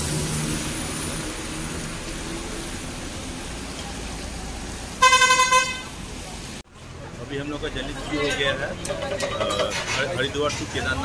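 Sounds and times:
bus road and wind noise: 0.0s - 11.0s
vehicle horn honking: 5.0s - 6.0s.

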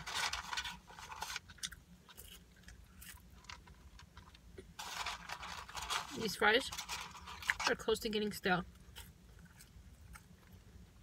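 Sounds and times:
person chewing french fries: 0.0s - 5.8s, 8.7s - 11.0s.

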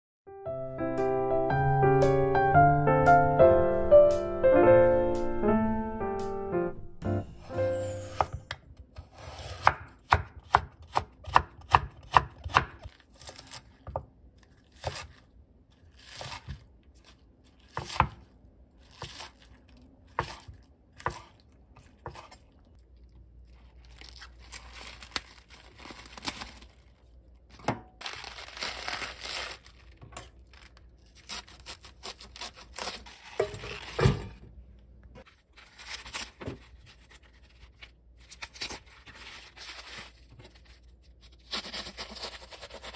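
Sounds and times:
knife chopping on wooden board: 9.6s - 12.9s, 21.0s - 21.3s
cabbage leaves rustling and tearing: 12.8s - 34.0s, 35.2s - 42.9s.

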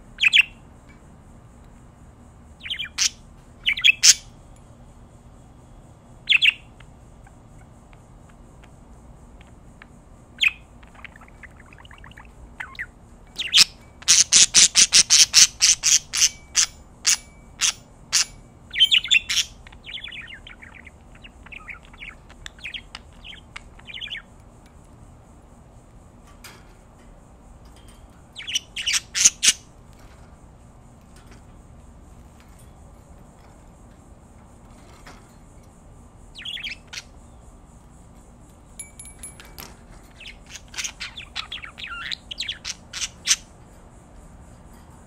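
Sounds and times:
budgerigars chirping: 0.2s - 0.5s, 2.6s - 4.3s, 6.3s - 6.7s, 10.4s - 24.3s, 28.4s - 29.7s, 36.4s - 37.1s, 40.1s - 43.5s
budgerigars warbling chatter: 2.6s - 4.2s, 10.4s - 24.3s, 28.4s - 29.7s, 36.4s - 37.2s, 40.2s - 43.5s.

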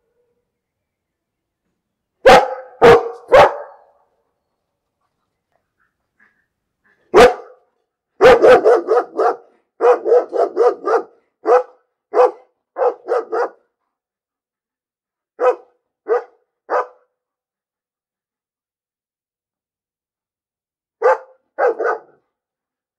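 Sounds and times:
dog barking: 2.2s - 4.0s, 7.1s - 13.7s, 15.4s - 17.1s, 21.0s - 22.2s.

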